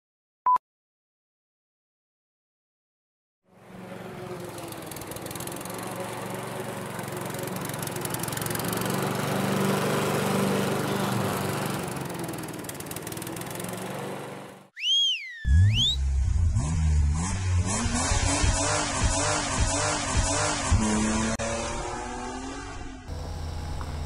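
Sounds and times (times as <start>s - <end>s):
lawn mower engine running: 3.5s - 14.7s, 23.1s - 24.0s.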